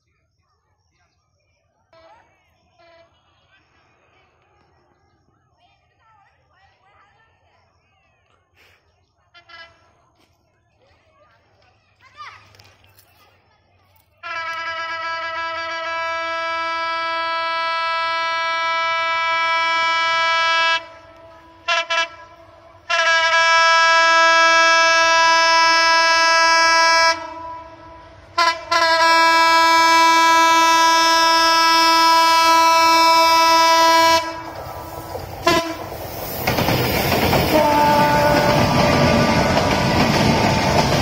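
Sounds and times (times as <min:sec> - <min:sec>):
diesel locomotive horn blasts: 0:14.2 - 0:36.0, 0:37.5 - 0:41.0
train passing with rushing rumble: 0:14.3 - 0:41.0.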